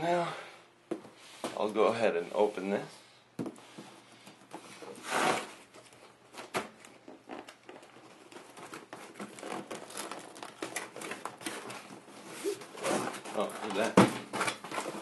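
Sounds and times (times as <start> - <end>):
cardboard rustling and crinkling: 4.5 - 15.0.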